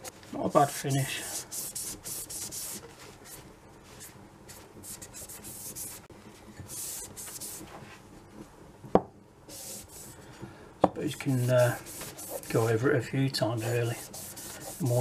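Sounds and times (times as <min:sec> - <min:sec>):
cloth scrubbing metal tube: 0:13.6 - 0:15.0.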